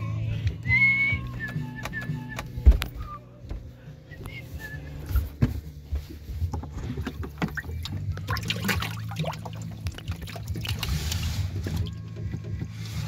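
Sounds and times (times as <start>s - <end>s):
water splashing and rushing: 7.3s - 11.8s.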